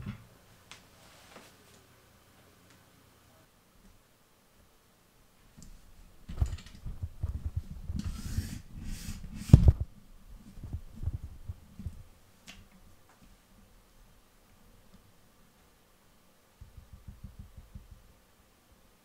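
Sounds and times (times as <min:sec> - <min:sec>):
microphone handling rustling: 0:05.6 - 0:08.2, 0:09.3 - 0:12.1.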